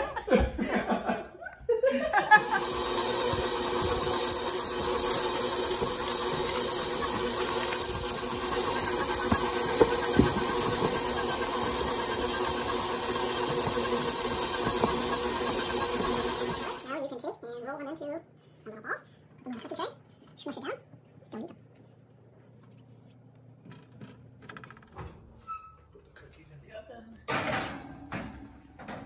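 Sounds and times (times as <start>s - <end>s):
stand mixer churning dough: 2.3s - 17.0s.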